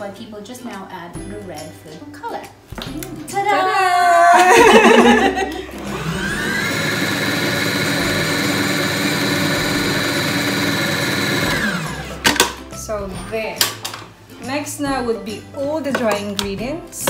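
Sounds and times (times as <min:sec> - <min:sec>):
people laughing: 0:04.1 - 0:06.2
stand mixer motor whining: 0:05.7 - 0:12.4.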